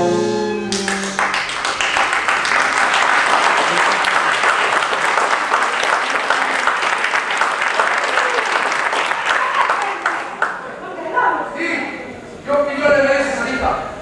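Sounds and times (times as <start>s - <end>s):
audience applause: 0.6s - 10.8s.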